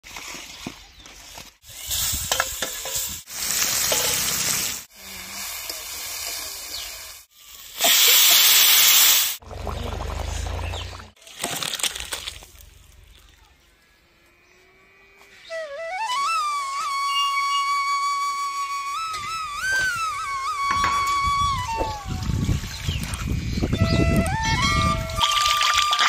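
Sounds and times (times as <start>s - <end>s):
vegetables sizzling in oil: 1.7s - 9.4s.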